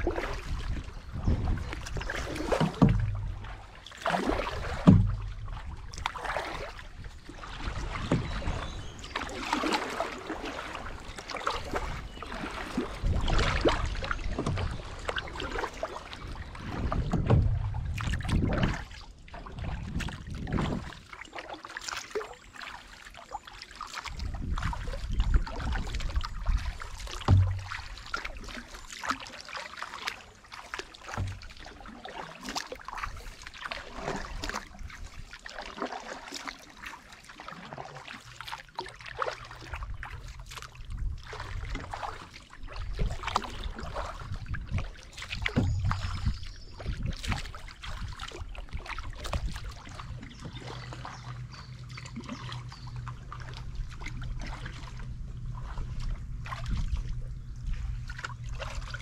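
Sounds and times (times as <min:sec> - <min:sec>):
paddle strokes splashing in water: 0:00.0 - 0:59.0
water trickling off paddle: 0:00.0 - 0:59.0.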